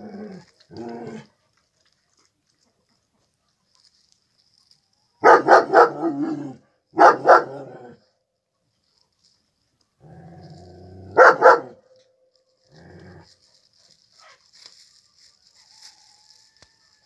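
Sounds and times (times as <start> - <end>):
dog growling: 0.0 - 1.3, 5.8 - 6.6, 12.6 - 13.4
dog barking: 5.2 - 7.9, 11.1 - 11.9.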